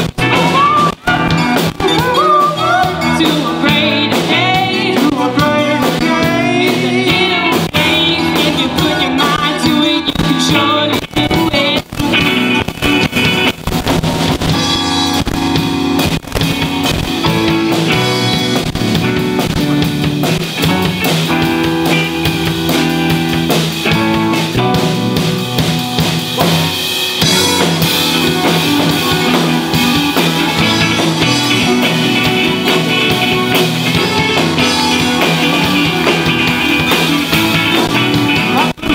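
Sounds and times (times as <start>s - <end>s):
live rock band playing: 0.0s - 38.9s
woman singing lead vocal: 0.3s - 11.9s.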